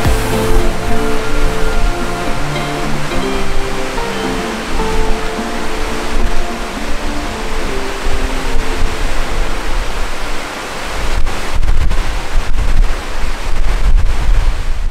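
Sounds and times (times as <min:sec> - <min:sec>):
background music: 0:00.0 - 0:09.8
sea surf rushing: 0:00.0 - 0:14.8
wind buffeting microphone: 0:00.0 - 0:14.9.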